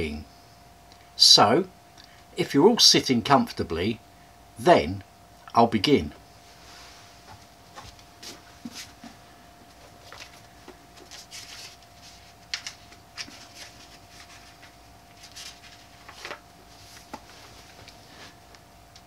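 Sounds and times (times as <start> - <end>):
faint steady hum: 0.0 - 19.0
book pages rustling and flicking: 9.7 - 18.4.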